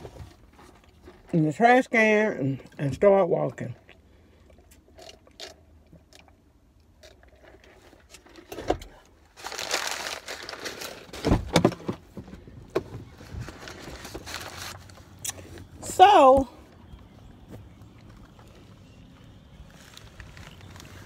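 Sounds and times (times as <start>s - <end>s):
paper wrapper crumpling: 9.3s - 11.2s, 13.2s - 15.0s, 19.6s - 21.0s.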